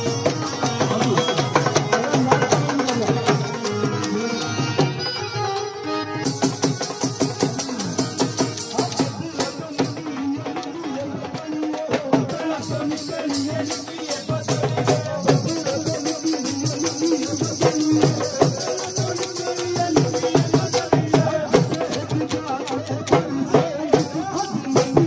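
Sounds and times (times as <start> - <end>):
steady drum beat: 0.0 - 5.0, 6.2 - 25.0
person singing: 6.2 - 25.0
jingling rattle: 12.6 - 20.7.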